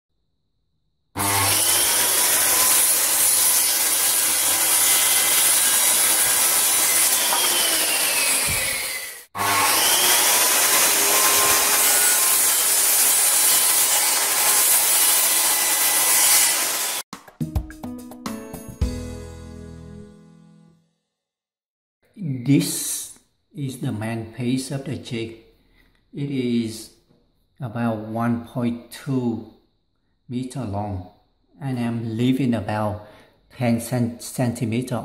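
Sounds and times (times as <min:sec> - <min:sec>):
circular saw cutting wood: 0:01.2 - 0:17.0.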